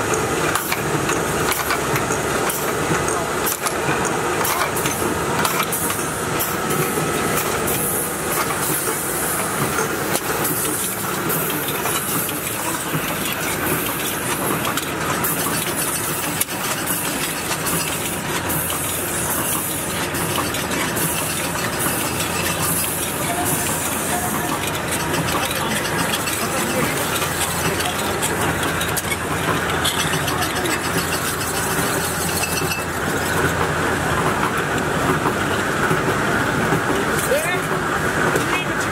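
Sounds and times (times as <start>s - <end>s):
cans clattering through machine: 9.8s - 33.3s.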